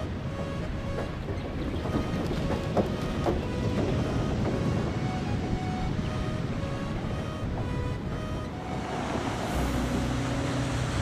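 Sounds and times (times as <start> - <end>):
background music with held notes: 0.0 - 11.0
wind: 0.0 - 11.0
water rushing: 1.9 - 11.0.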